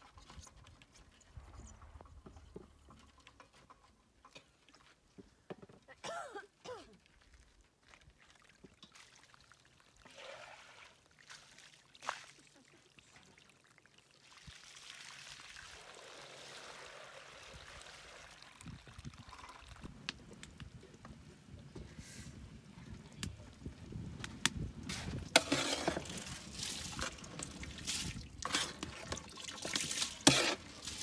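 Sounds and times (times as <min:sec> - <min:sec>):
water splashing onto ground: 0:24.9 - 0:31.0.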